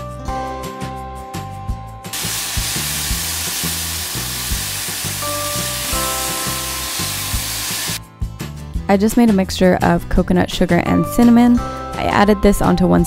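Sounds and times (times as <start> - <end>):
banana slices sizzling in oil: 2.2 - 8.0.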